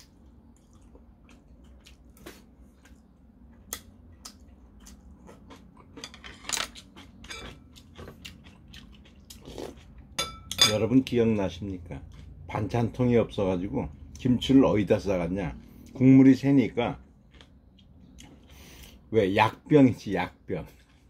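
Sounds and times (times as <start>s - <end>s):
person chewing: 0.0s - 10.2s, 12.0s - 12.7s, 17.0s - 19.1s, 20.7s - 21.0s.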